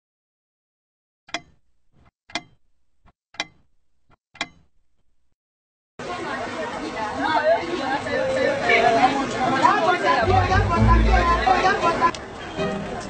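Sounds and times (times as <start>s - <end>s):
clock ticking: 1.3s - 2.6s, 3.4s - 3.7s, 4.4s - 5.2s.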